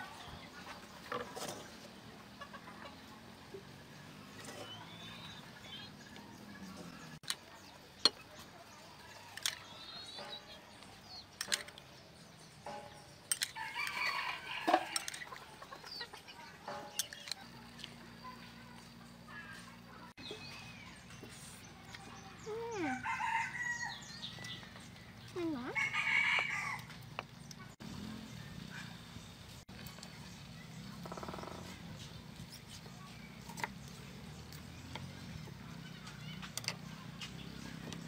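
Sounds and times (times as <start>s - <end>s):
chickens clucking: 0.2s - 8.4s, 14.5s - 19.0s.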